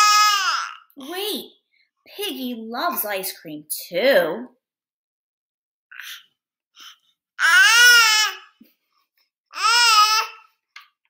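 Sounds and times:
baby babbling: 0:00.0 - 0:01.0, 0:05.9 - 0:08.6, 0:09.5 - 0:10.5.

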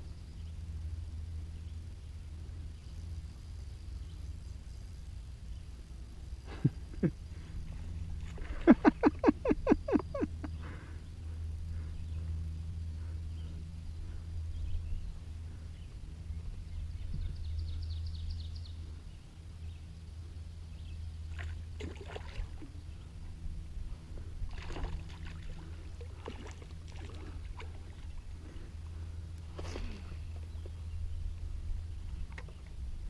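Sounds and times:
boat engine hum: 0:00.0 - 0:33.0
fish splashing at water surface: 0:24.5 - 0:28.1.

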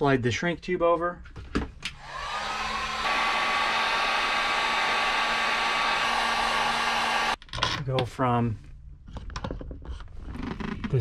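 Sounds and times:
heat gun blowing: 0:02.0 - 0:07.4.

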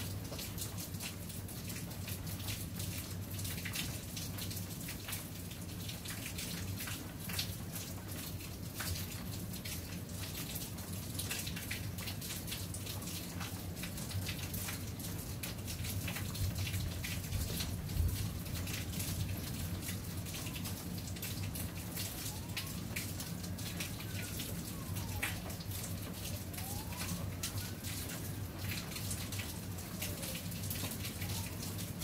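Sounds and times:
rain falling: 0:00.0 - 0:32.0
sharp raindrops landing close: 0:00.0 - 0:32.0.

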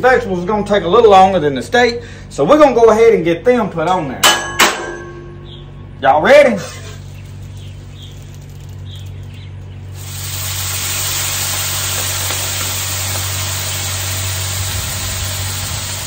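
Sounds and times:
low hum: 0:04.3 - 0:06.0
vegetables sizzling on a griddle: 0:10.0 - 0:16.0.

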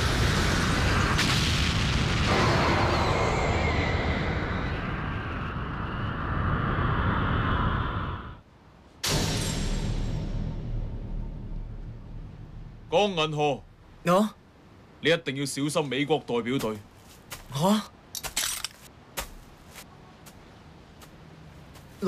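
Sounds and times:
cartoon explosion: 0:00.4 - 0:05.2.

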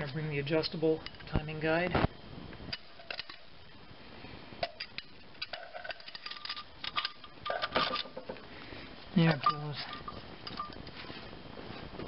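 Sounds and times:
light metallic clinks and taps: 0:09.3 - 0:11.0.

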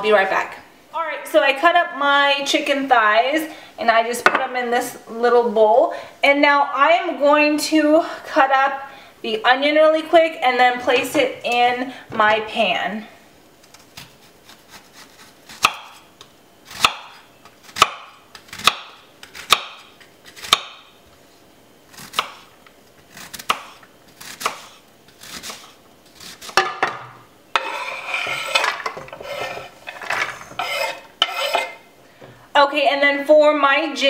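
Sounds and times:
knife chopping on wooden board: 0:15.5 - 0:16.0, 0:16.7 - 0:20.8, 0:22.1 - 0:22.4, 0:23.4 - 0:27.0
scraping onion into pan: 0:27.6 - 0:31.9.

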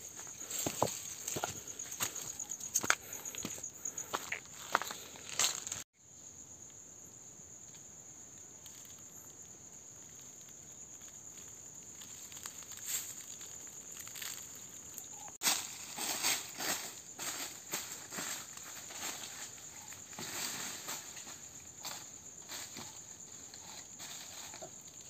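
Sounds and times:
insects buzzing: 0:00.0 - 0:25.0
footsteps on dry leaves: 0:15.4 - 0:19.5.

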